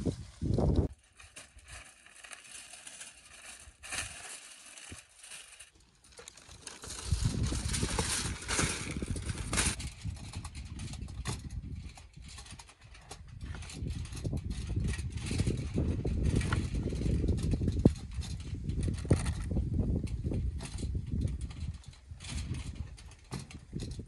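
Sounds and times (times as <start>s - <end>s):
foil and paper crinkling: 0.0s - 10.5s.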